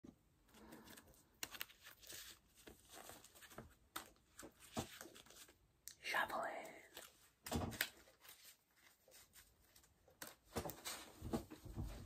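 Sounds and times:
playing cards being shuffled: 0:00.7 - 0:05.6.

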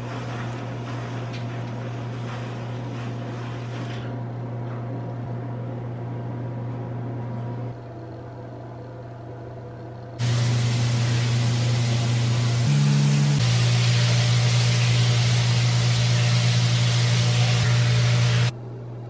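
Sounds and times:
steady hiss: 0:10.2 - 0:18.5.

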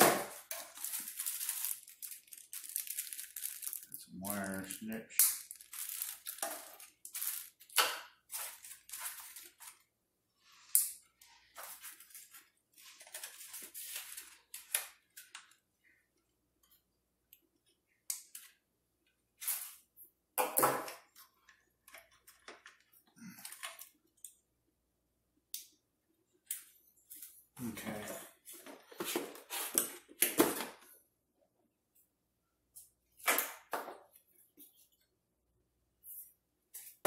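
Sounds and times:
plastic wrapping crinkling: 0:00.3 - 0:09.9.

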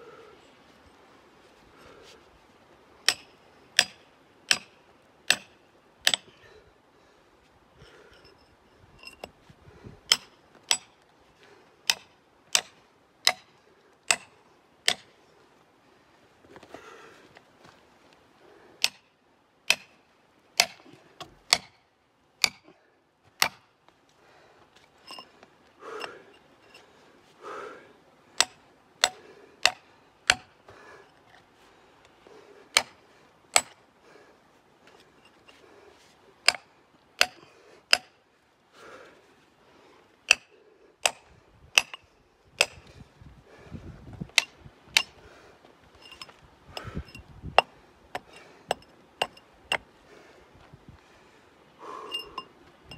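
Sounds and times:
chisel striking rock: 0:03.0 - 0:06.3, 0:10.1 - 0:11.0, 0:11.8 - 0:13.5, 0:14.1 - 0:15.1, 0:18.8 - 0:19.1, 0:19.7 - 0:20.0, 0:20.6 - 0:21.8, 0:22.4 - 0:22.6, 0:23.3 - 0:23.7, 0:28.4 - 0:30.5, 0:32.7 - 0:33.8, 0:36.4 - 0:38.2, 0:40.3 - 0:42.0, 0:42.6 - 0:42.8, 0:44.3 - 0:45.2, 0:46.0 - 0:49.9
chisel scraping rock: 0:46.0 - 0:49.9.

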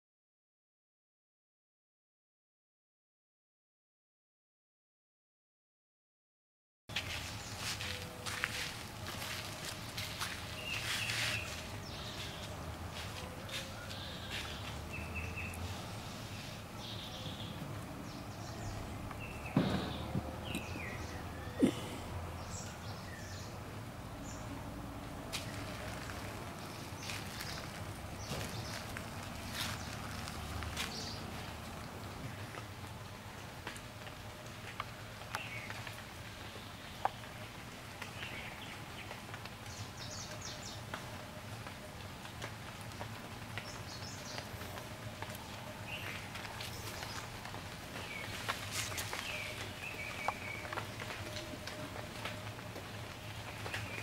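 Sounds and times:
dull thumps: 0:19.6 - 0:20.9.

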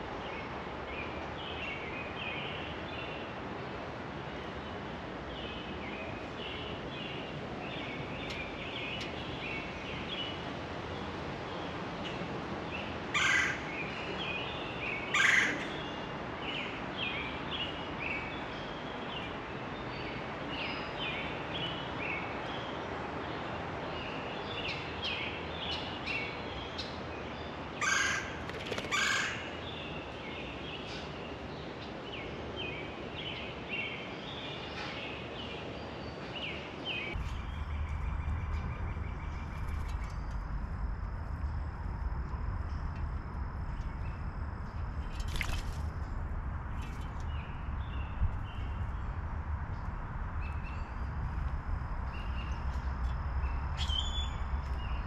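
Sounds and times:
songbirds chirping: 0:00.0 - 0:55.0
loud harsh bird calls: 0:27.8 - 0:29.6.

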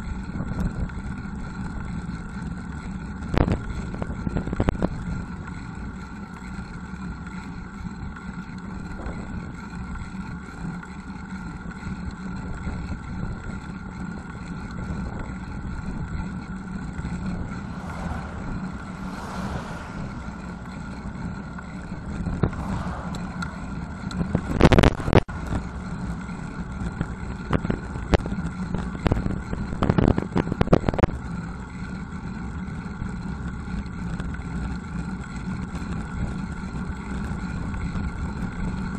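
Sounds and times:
tyres rumbling on road: 0:00.8 - 0:38.9
car passing: 0:16.8 - 0:26.9
wind on microphone: 0:16.8 - 0:31.2.

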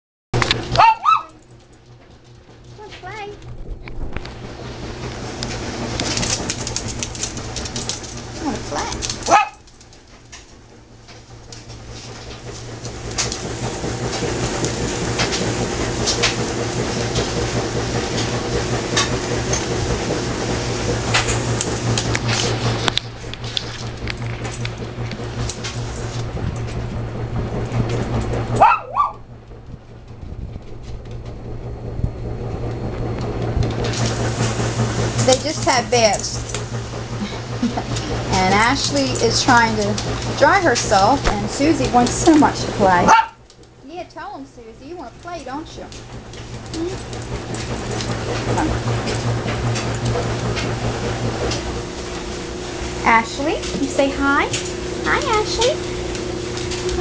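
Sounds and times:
dog yelping: 0:00.7 - 0:01.4, 0:09.2 - 0:09.6, 0:28.6 - 0:29.2.

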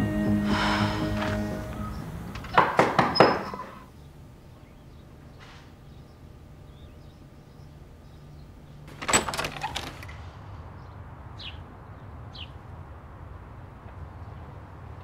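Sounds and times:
bird chirps: 0:00.5 - 0:02.6, 0:03.2 - 0:08.8
door handle and lock clatter: 0:08.9 - 0:10.2.

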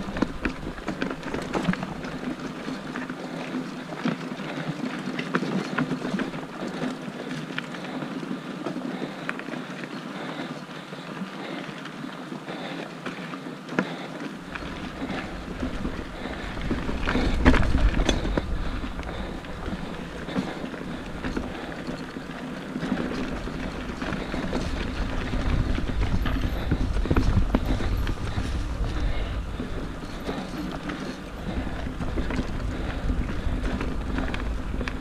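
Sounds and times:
wind rumbling on microphone: 0:14.4 - 0:35.0
bike knocks and rattles: 0:14.5 - 0:35.0.

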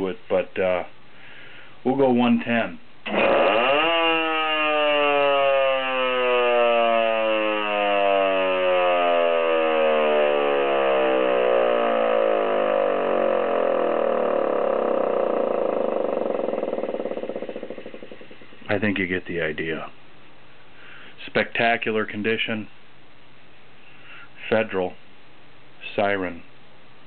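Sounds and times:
air raid siren winding down: 0:03.0 - 0:19.0.

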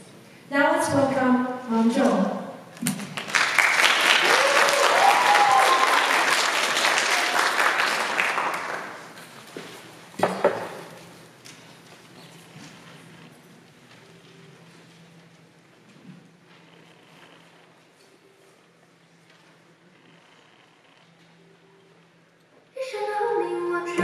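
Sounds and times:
audience applauding: 0:02.9 - 0:09.4
whooping: 0:03.8 - 0:09.0.

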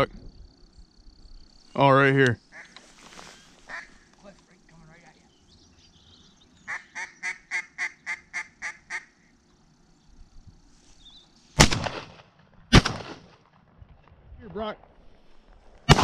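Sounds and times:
duck quacking: 0:03.7 - 0:04.0, 0:06.7 - 0:09.1
shotgun shots: 0:11.6 - 0:13.6.

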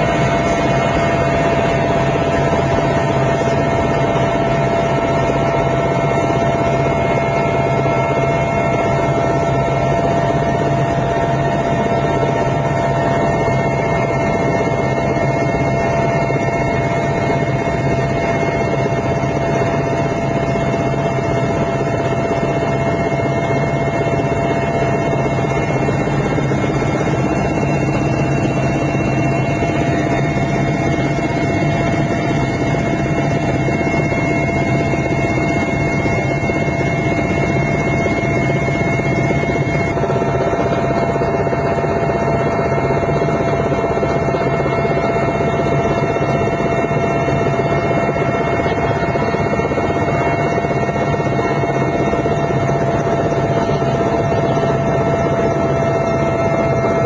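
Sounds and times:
helicopter engine and rotor drone: 0:00.0 - 0:57.0
high turbine whine: 0:00.0 - 0:57.0.

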